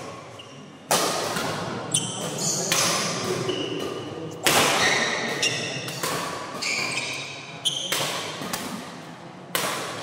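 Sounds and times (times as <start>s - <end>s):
sneakers squeaking on court: 0.2s - 0.8s, 1.8s - 4.1s, 4.7s - 8.4s
rackets striking shuttlecock: 0.8s - 10.0s.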